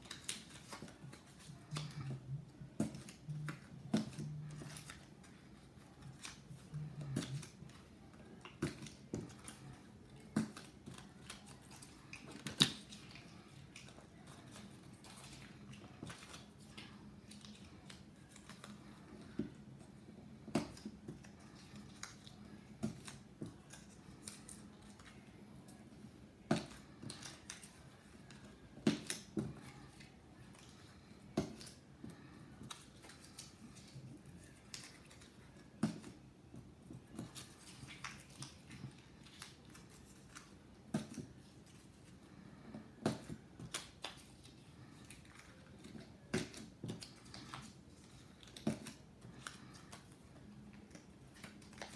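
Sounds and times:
faint low hum: 0.0 - 51.9.

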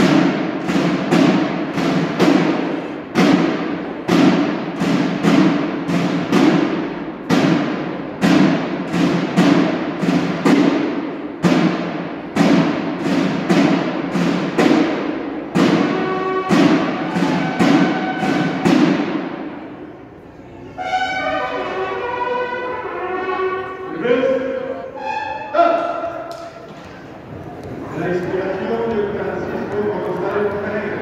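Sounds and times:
marching drums echoing: 0.0 - 31.0.

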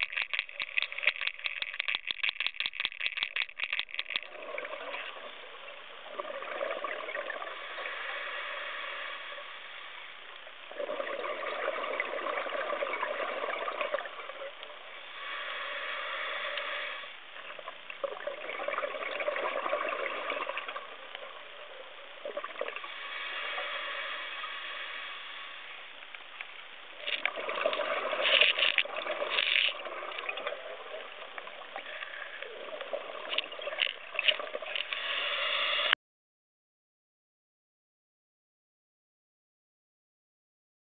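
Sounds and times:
exhaled bubbles gushing underwater: 0.0 - 7.9, 10.7 - 15.0, 17.4 - 22.9, 27.0 - 34.8.

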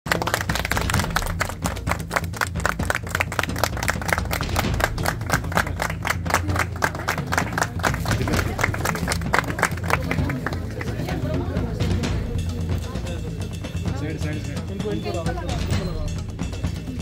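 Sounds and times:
people clapping: 0.0 - 13.5
low rumble: 2.5 - 13.0.

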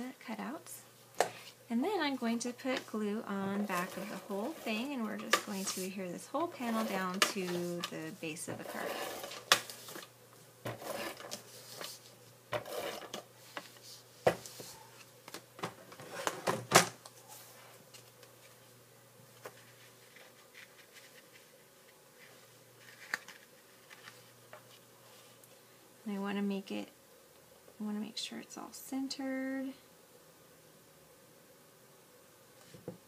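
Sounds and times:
paper rustling: 3.5 - 10.1, 10.7 - 15.1, 19.3 - 25.3.

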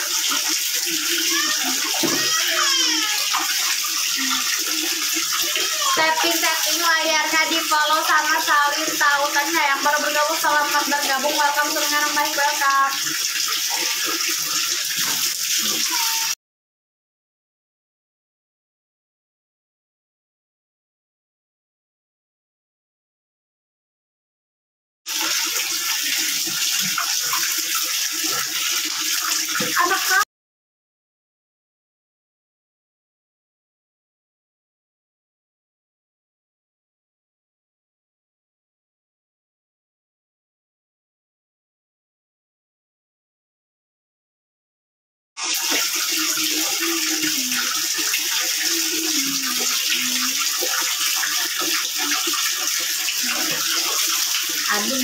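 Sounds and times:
tap pouring into plastic bucket: 0.0 - 6.0, 12.8 - 16.2, 25.1 - 29.9, 45.4 - 48.7, 49.6 - 55.0
water poured over head: 0.0 - 16.4, 25.1 - 30.2, 45.4 - 55.0.

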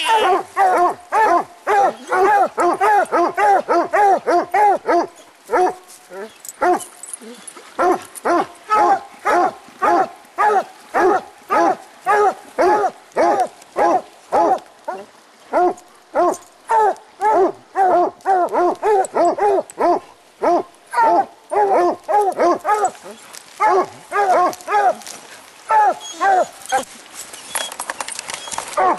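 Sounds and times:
hounds barking: 0.1 - 5.8, 7.8 - 25.1, 25.7 - 26.9.

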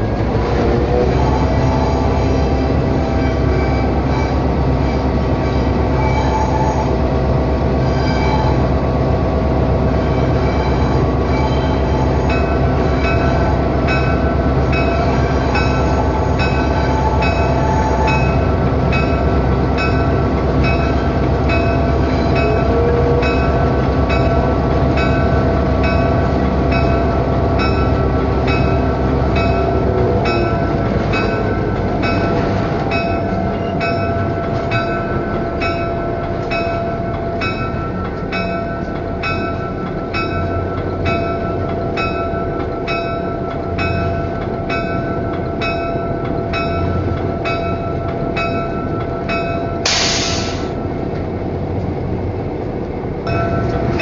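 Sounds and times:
diesel locomotive engine droning: 0.0 - 54.0
wheels rumbling on rails: 0.0 - 54.0.

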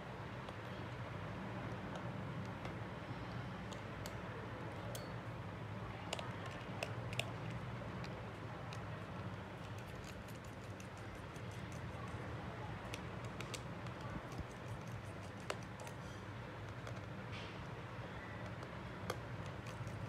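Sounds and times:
small tools clicking and tapping: 4.8 - 5.2.

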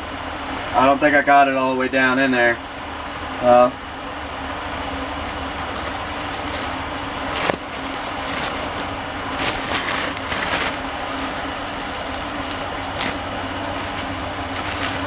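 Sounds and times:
steady background hum: 0.0 - 15.0
paper towel crinkling: 5.2 - 15.0.

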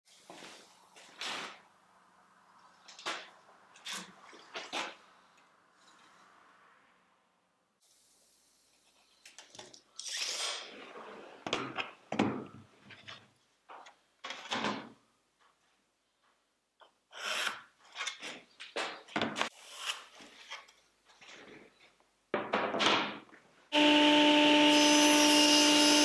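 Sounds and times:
tape measure retracting: 10.0 - 10.7.

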